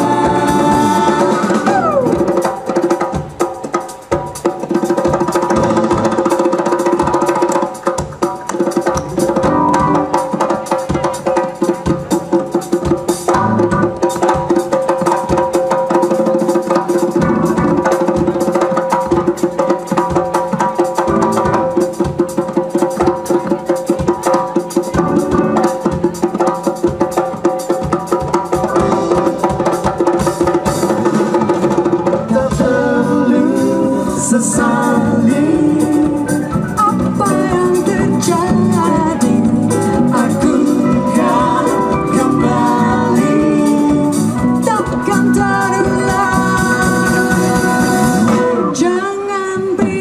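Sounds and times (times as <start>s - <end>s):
people singing: 0.0s - 2.5s, 32.0s - 49.2s
electric guitar: 0.0s - 3.4s, 5.1s - 22.3s, 24.2s - 50.0s
djembe hand drums: 0.0s - 48.9s
live band playing: 0.0s - 50.0s.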